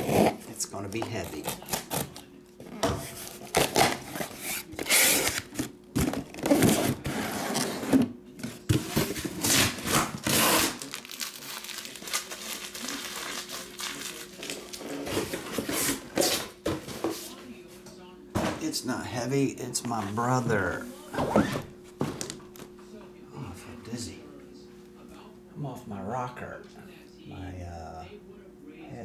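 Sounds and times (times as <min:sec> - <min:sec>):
cardboard and plastic wrap crinkling: 0:01.1 - 0:17.4.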